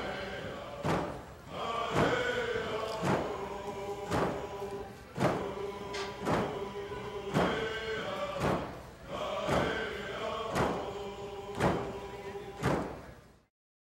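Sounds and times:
group chanting in unison: 0:00.0 - 0:13.1
hand drums beating: 0:06.2 - 0:06.6, 0:10.5 - 0:10.8.

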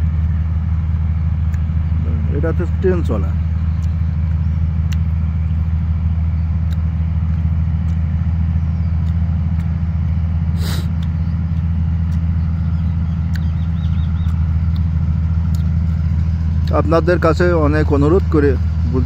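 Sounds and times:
low engine drone: 0:00.0 - 0:19.0.

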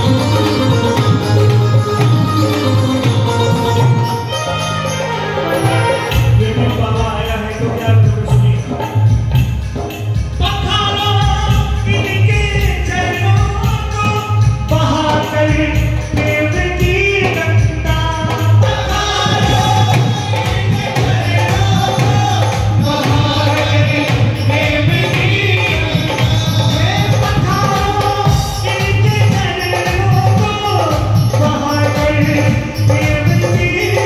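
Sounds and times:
man singing into a microphone: 0:05.6 - 0:34.0.

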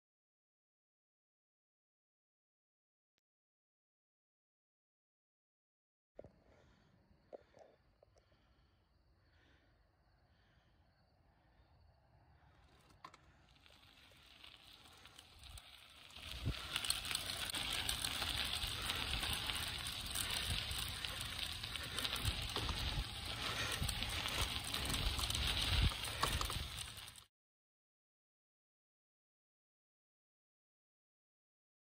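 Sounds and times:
wind buffeting microphone: 0:16.2 - 0:27.1.

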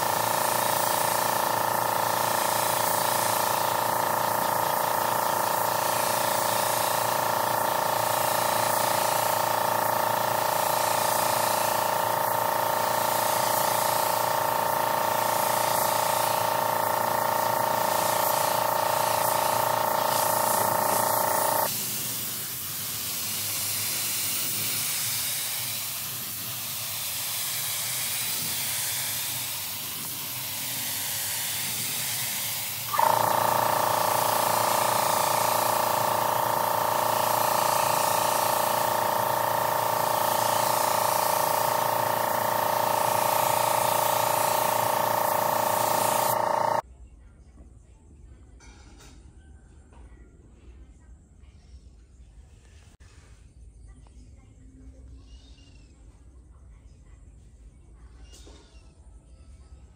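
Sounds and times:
spray gun hissing: 0:00.0 - 0:46.8.

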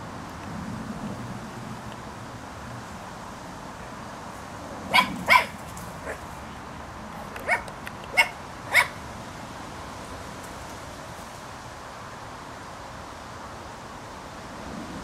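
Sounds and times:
dog yapping: 0:04.9 - 0:06.2, 0:07.4 - 0:09.0.

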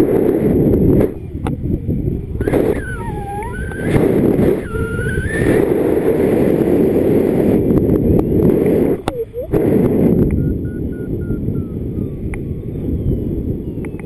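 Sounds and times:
wind rushing over microphone: 0:00.0 - 0:14.0
wavering high tones: 0:02.4 - 0:06.2, 0:09.0 - 0:09.7, 0:10.4 - 0:12.2.

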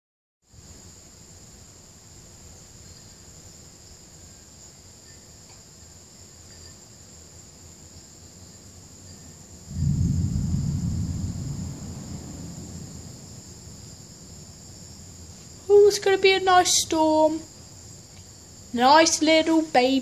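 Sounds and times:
insects buzzing: 0:00.5 - 0:20.0
thunder rumbling: 0:09.7 - 0:14.8.

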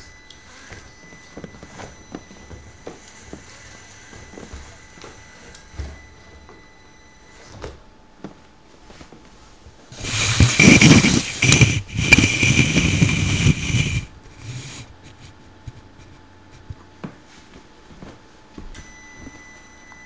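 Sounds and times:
electric motor and gears whining: 0:00.0 - 0:07.8, 0:10.0 - 0:14.9
faint high whine: 0:00.0 - 0:09.0, 0:18.6 - 0:20.0.

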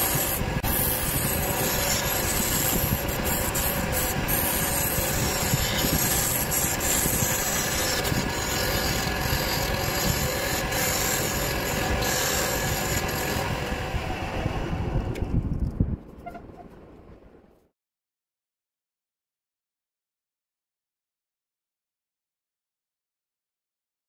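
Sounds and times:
turning tool scraping wood: 0:00.0 - 0:13.8
wood lathe humming: 0:00.0 - 0:15.1.

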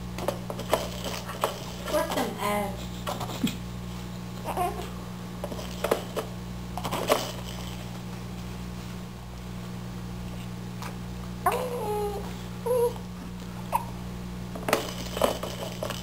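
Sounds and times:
baby babbling: 0:04.4 - 0:04.9, 0:11.4 - 0:13.0.

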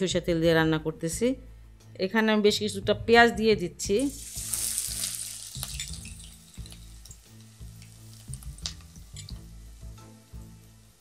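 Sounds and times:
onions sizzling in hot oil: 0:03.9 - 0:11.0
oil crackles: 0:04.0 - 0:09.4.

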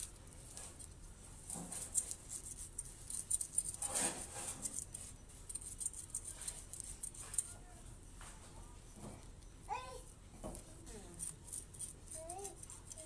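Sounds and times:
knife scraping fish scales: 0:00.0 - 0:07.6.

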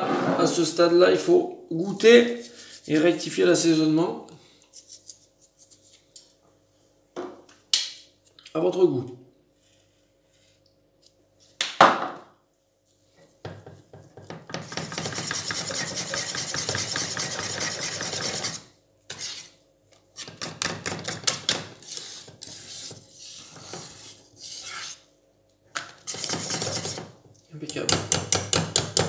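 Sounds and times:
whisk knocking pan: 0:14.3 - 0:18.6, 0:26.1 - 0:27.1
whisk scraping saucepan: 0:14.5 - 0:19.6, 0:20.2 - 0:25.1, 0:26.0 - 0:27.2.

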